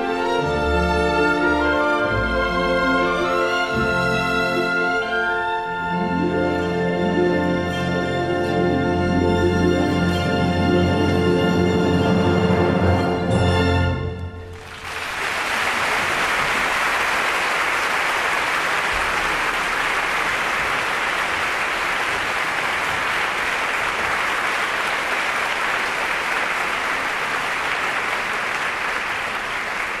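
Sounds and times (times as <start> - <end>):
audience applauding: 14.4 - 30.0.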